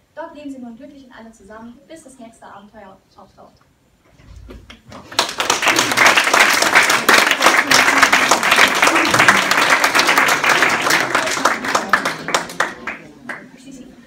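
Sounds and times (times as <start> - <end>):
audience applauding: 5.0 - 13.6.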